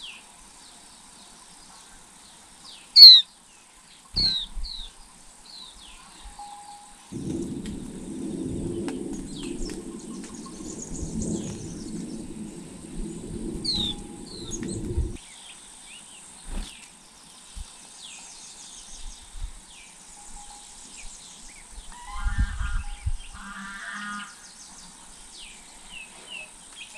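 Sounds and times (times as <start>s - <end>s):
small birds chirping: 0.0s - 6.5s, 7.1s - 22.2s
low rumbling noise: 7.1s - 15.2s.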